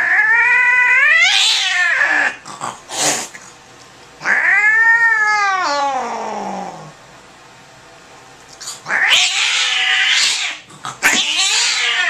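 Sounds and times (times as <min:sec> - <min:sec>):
cat yowling: 0:00.0 - 0:02.4, 0:04.2 - 0:06.9, 0:08.8 - 0:12.0
cat hissing: 0:00.0 - 0:03.6, 0:04.2 - 0:07.0, 0:08.6 - 0:12.0.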